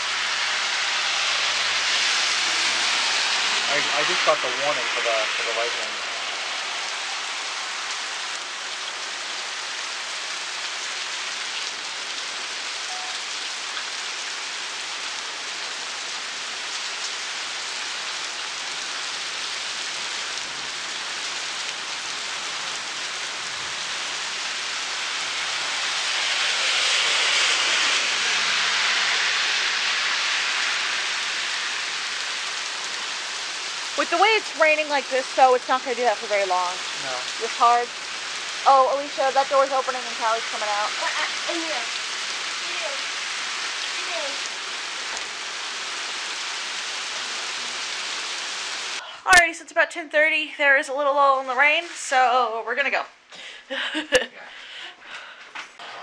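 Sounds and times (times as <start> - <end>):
heavy rain on pavement: 0.0 - 56.0.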